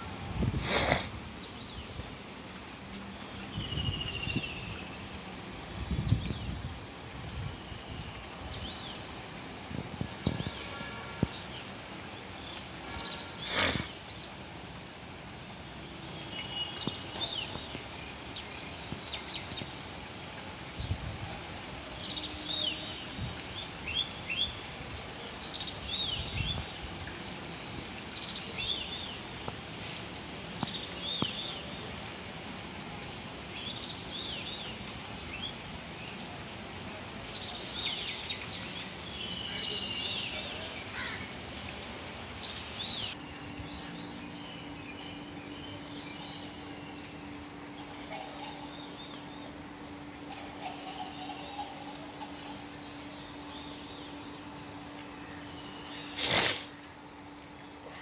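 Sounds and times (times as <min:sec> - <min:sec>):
birds chirping: 0:03.2 - 0:15.5, 0:37.4 - 0:58.0.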